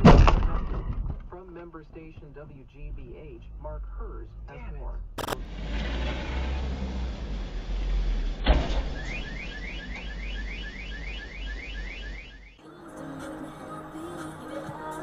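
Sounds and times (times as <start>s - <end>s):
low vehicle rumble: 2.2s - 12.6s
car alarm chirping whoops: 8.9s - 12.6s.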